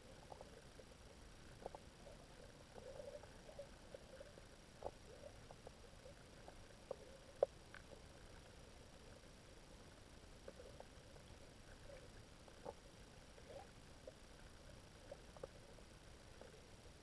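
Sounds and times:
low underwater hiss: 0:00.0 - 0:17.0
soft underwater clicks and pops: 0:00.2 - 0:08.5.

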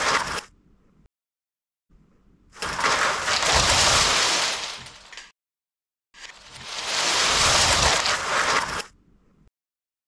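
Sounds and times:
plastic bricks crashing and clattering: 0:02.6 - 0:05.3, 0:06.2 - 0:08.8.

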